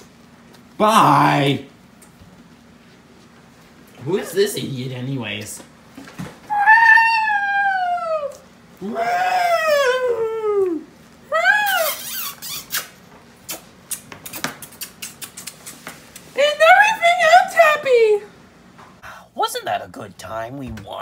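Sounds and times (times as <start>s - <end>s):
high-pitched wailing cries: 6.5s - 12.8s.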